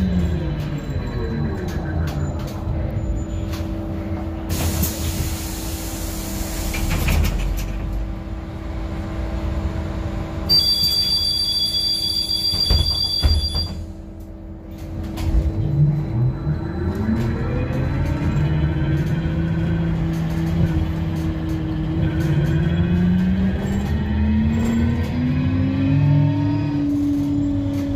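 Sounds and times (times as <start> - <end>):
electric hum of trolleybus: 0.0 - 27.9
high two-tone door beep: 10.5 - 13.9.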